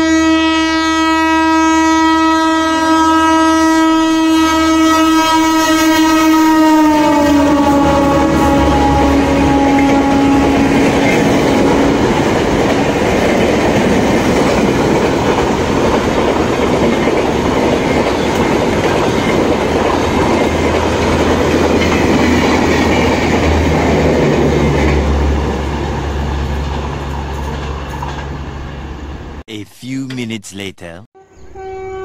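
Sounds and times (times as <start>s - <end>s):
train horn: 0.0s - 12.2s, 31.2s - 32.0s.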